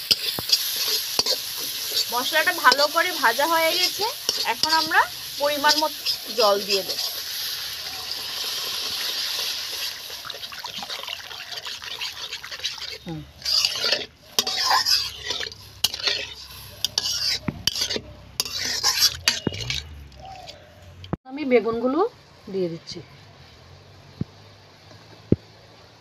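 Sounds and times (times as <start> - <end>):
masala sizzling in a wok: 0.0 - 20.6, 21.3 - 26.0
metal spatula scraping a wok: 0.0 - 20.7.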